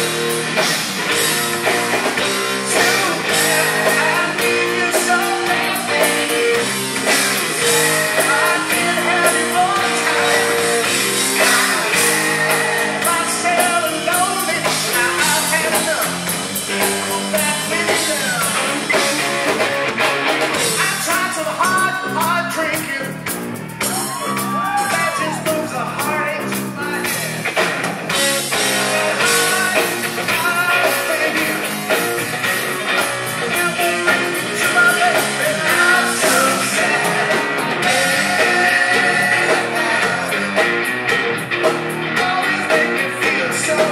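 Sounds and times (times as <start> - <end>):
drum kit: 0.0 - 43.9
electric guitars: 0.0 - 43.9
person singing: 2.5 - 16.2, 28.9 - 32.0, 33.0 - 40.7, 42.1 - 43.9.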